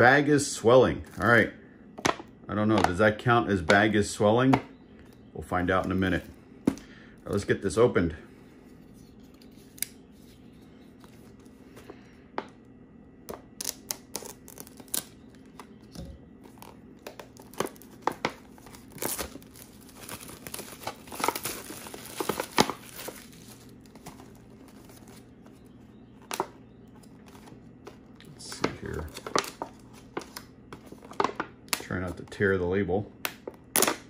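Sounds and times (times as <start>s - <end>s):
packaging crinkling and ripping: 13.5s - 15.7s, 16.4s - 25.6s, 26.2s - 32.0s.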